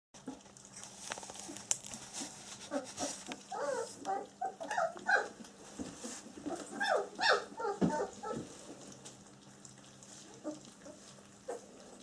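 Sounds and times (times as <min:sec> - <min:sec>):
puppies smacking and lapping: 0:00.2 - 0:12.0
puppies squeaking and whimpering: 0:02.2 - 0:05.4, 0:06.0 - 0:08.5, 0:10.2 - 0:12.0.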